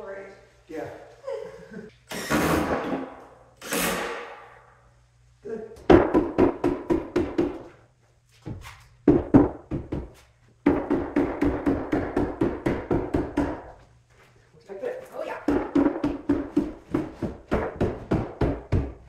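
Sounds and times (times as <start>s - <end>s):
mallet knocking on plywood: 5.9s - 7.6s, 9.1s - 13.7s, 15.4s - 19.0s.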